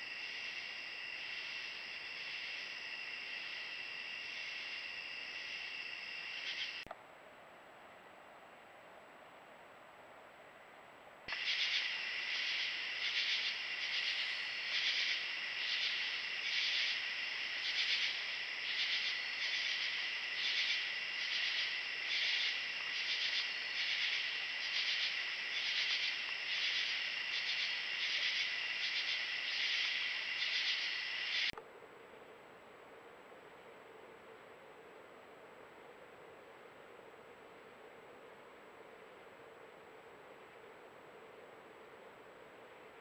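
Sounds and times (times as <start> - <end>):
night insects chorus: 0.0 - 6.9, 11.3 - 31.6.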